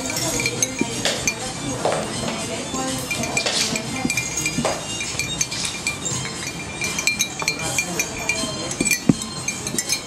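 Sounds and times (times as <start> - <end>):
metal straws clinking glass: 0.0 - 10.0.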